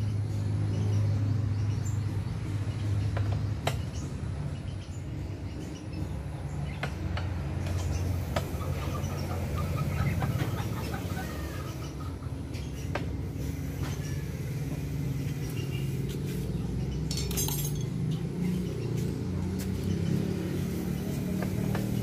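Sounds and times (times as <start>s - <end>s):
hand tool clinking on bolts: 17.1s - 18.2s.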